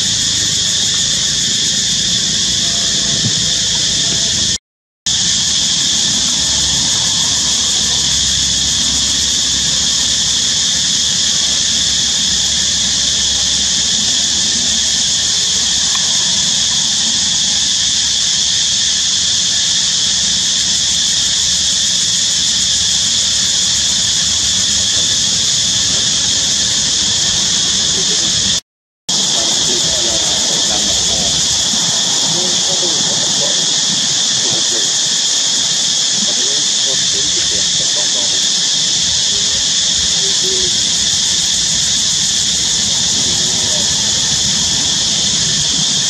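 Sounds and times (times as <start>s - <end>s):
high-pitched hiss: 0.0s - 46.0s.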